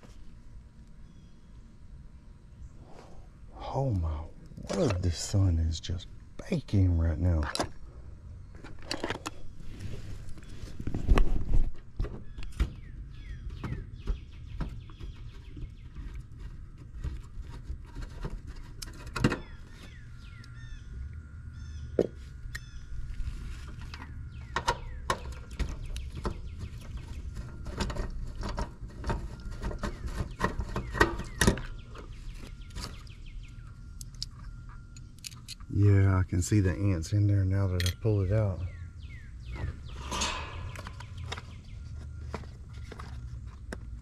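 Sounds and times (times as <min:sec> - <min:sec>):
birds chirping faintly: 0:00.0 - 0:44.0
tools clicking and scraping on metal: 0:34.0 - 0:35.7, 0:37.8 - 0:38.0.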